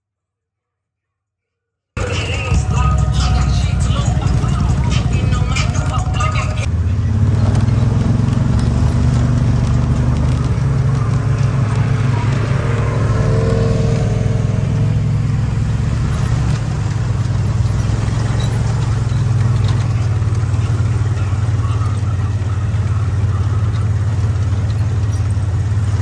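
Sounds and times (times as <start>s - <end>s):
engine droning: 2.0s - 26.0s
faint engine note: 2.0s - 26.0s.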